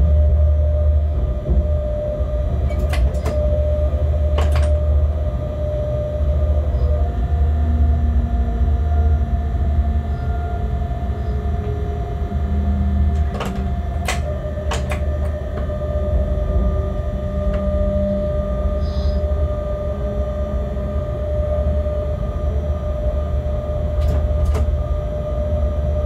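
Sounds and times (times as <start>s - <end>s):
locomotive engine drone: 0.0s - 26.0s
steady whine: 0.0s - 26.0s
sharp clicks or knocks: 4.4s - 4.8s, 13.2s - 15.1s.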